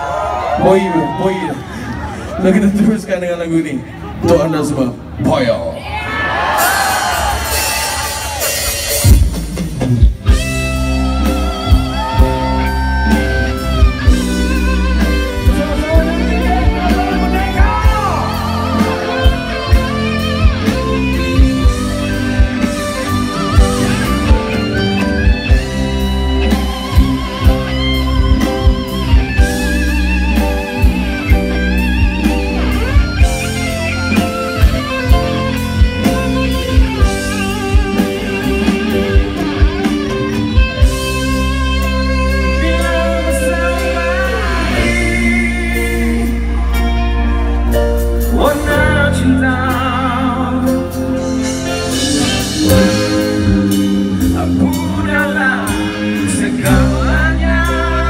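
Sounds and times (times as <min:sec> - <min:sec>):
drums on a steady beat: 0:06.8 - 0:41.5
electric guitar lead: 0:06.9 - 0:58.0
heavy bass line: 0:06.9 - 0:58.0.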